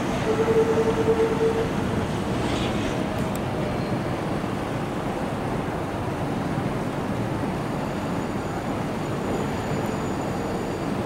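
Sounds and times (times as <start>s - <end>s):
electric trains running slowly: 0.0s - 11.0s.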